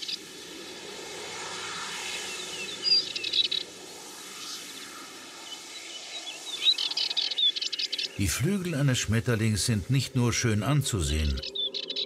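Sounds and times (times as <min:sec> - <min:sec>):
steady background hiss: 0:00.0 - 0:12.0
birds chirping: 0:02.2 - 0:12.0.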